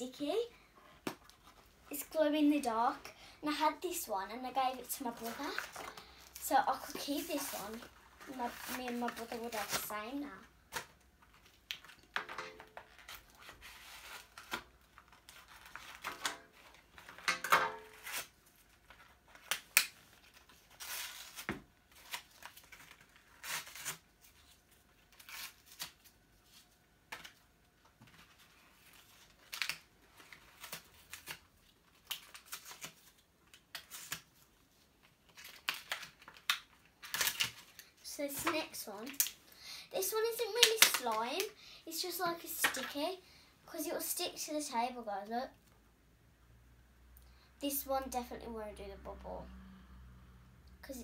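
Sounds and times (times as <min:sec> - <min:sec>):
plastic packaging crinkling and tearing: 0:04.4 - 0:17.2, 0:17.9 - 0:27.4, 0:28.1 - 0:39.4, 0:40.0 - 0:43.0.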